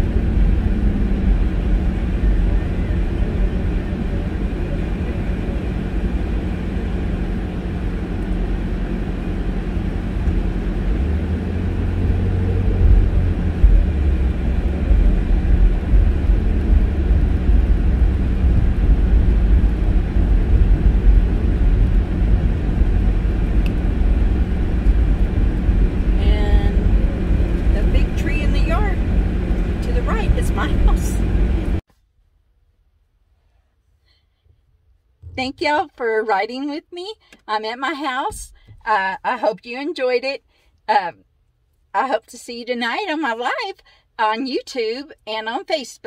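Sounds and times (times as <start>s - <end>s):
car engine and tyre rumble: 0.0s - 31.9s.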